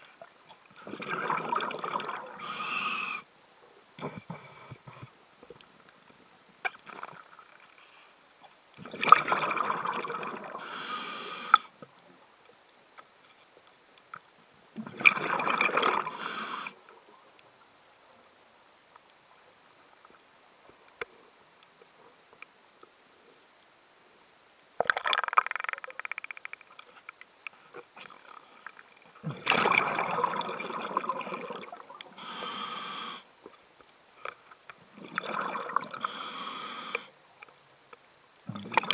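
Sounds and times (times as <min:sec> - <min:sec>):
underwater exhalation bubbling: 0:00.8 - 0:03.2, 0:08.8 - 0:11.6, 0:14.8 - 0:16.8, 0:24.8 - 0:26.2, 0:29.2 - 0:33.2, 0:34.9 - 0:37.0, 0:38.5 - 0:38.9
regulator inhalation hiss: 0:02.3 - 0:03.4, 0:10.5 - 0:11.8, 0:16.0 - 0:16.8, 0:31.9 - 0:33.4, 0:35.8 - 0:37.2.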